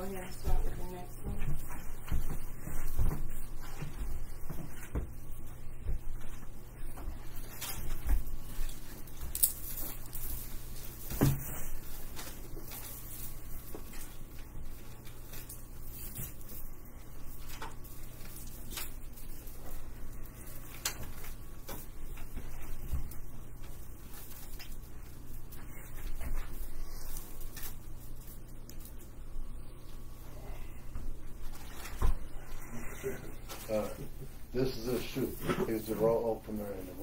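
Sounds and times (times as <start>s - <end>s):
objects knocking and rustling: 0.0s - 29.2s
steady low hum: 0.0s - 37.0s.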